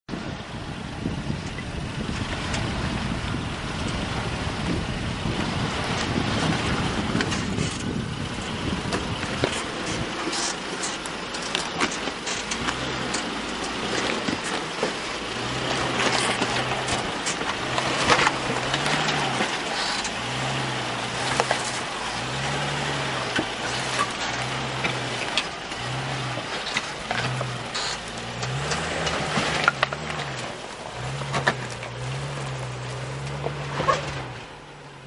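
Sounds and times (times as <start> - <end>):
wind on microphone: 0.1 - 10.3
engine running low and surging: 0.1 - 35.0.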